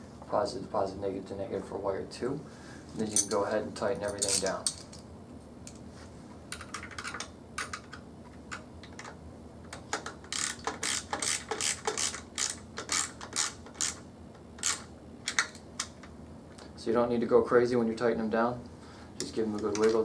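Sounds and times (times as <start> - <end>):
ratchet wrench clicking: 10.3 - 14.0, 14.6 - 15.5.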